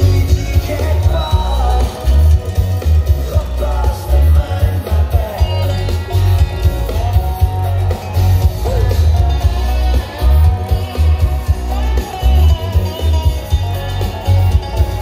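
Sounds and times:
person singing: 0.0s - 8.0s
country dance music: 0.0s - 15.0s.

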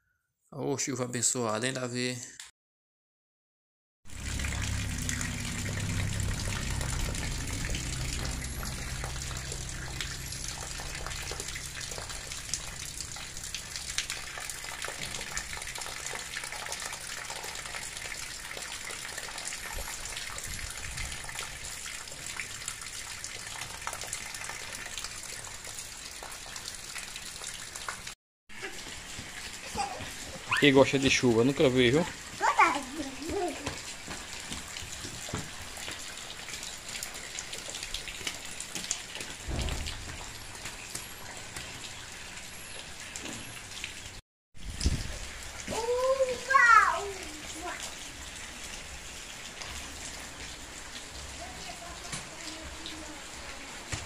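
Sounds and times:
low rumble: 4.1s - 14.1s
rain falling steadily: 4.1s - 54.0s
runoff gushing from gutter spout: 4.1s - 54.0s.

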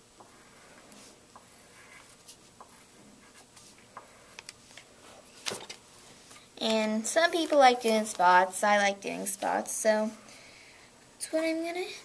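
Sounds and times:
pencil scratching on paper: 0.2s - 4.5s.

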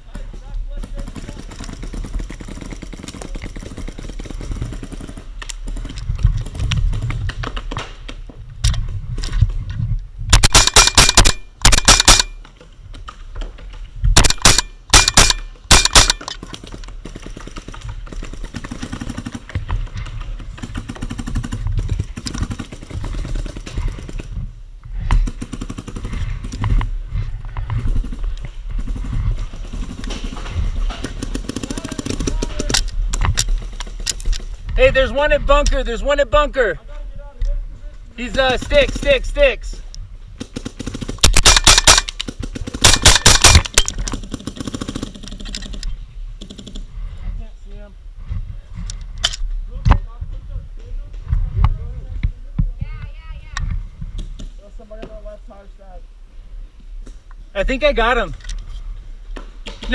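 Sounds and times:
paintball marker firing: 10.3s - 12.4s, 14.2s - 17.9s, 40.4s - 45.8s.

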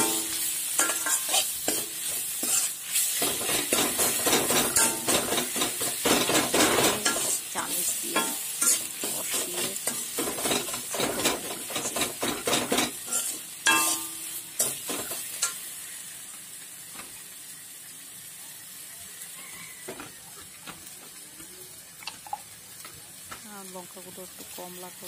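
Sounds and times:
metal clang: 0.0s - 1.9s, 3.2s - 7.3s, 9.9s - 15.6s
metal ladle scraping a pan: 0.0s - 15.7s
frying sizzle: 0.0s - 25.0s.

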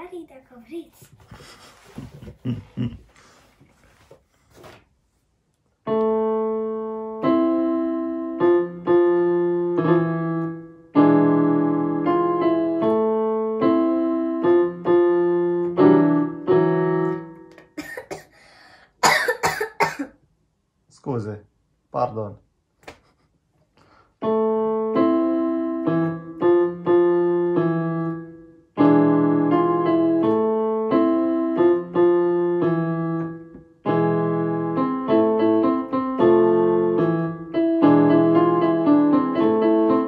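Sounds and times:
electronic keyboard piano tune: 5.8s - 17.8s, 24.2s - 40.0s
person coughing: 17.8s - 18.4s, 19.0s - 20.2s.

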